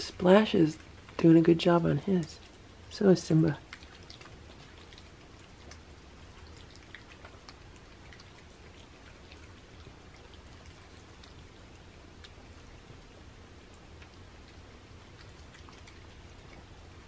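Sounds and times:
cats eating wet food: 0.0 - 17.0.

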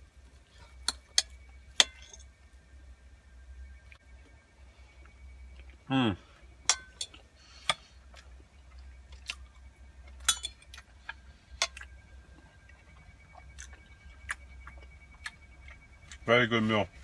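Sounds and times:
low steady hum: 0.0 - 17.0
cutlery clinking on a plate: 6.7 - 7.2, 10.2 - 10.8.

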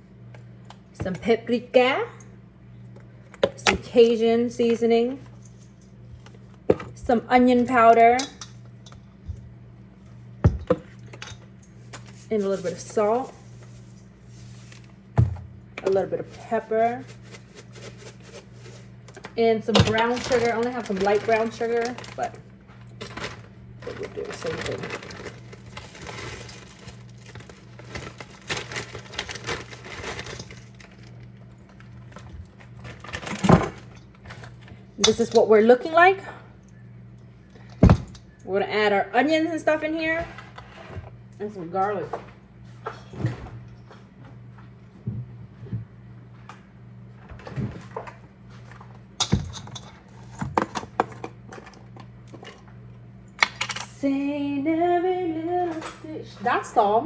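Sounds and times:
steady low hum: 0.0 - 57.0
plastic bag crinkling: 17.0 - 34.6.

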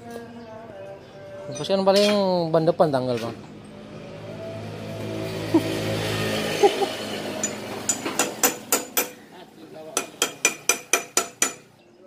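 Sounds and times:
metal tool clinking on wheel hub: 1.5 - 2.3, 7.4 - 9.2
engine hum: 2.9 - 9.6.

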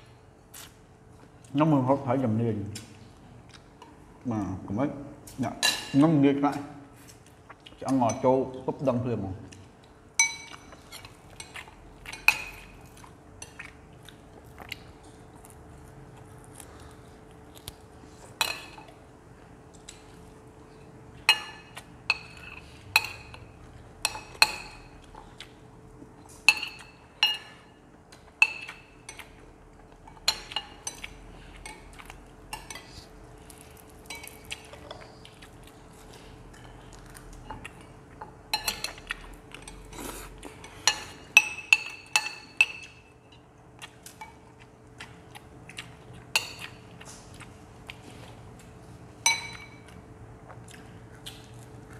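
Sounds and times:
cutlery clinking on plates: 49.2 - 49.9.

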